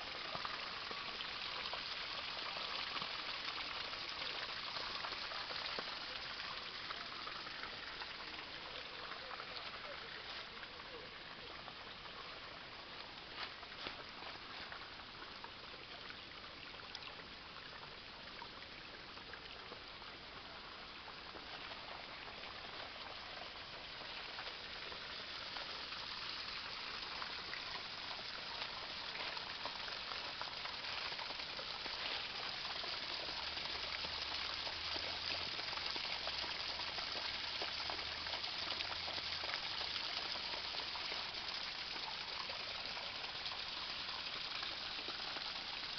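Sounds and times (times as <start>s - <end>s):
stream water running: 0.0s - 45.9s.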